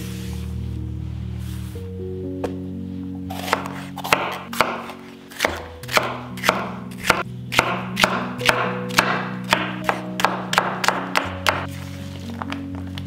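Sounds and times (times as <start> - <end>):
soft background music: 0.0 - 13.0
knife chopping on wooden board: 3.3 - 11.7.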